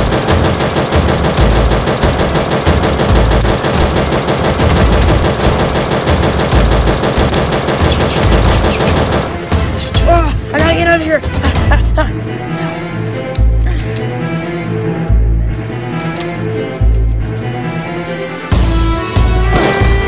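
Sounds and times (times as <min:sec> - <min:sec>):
machine-gun fire: 0:00.0 - 0:09.5.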